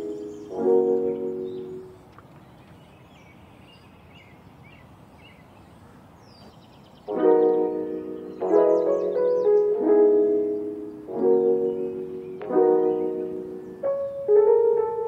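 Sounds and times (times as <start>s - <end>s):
piano chords: 0.0s - 2.1s, 7.0s - 15.0s.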